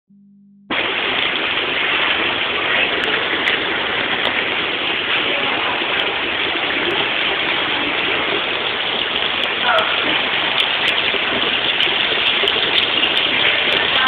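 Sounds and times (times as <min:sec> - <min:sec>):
low hum: 0:00.1 - 0:03.1
water pouring from a pipe: 0:00.7 - 0:14.0.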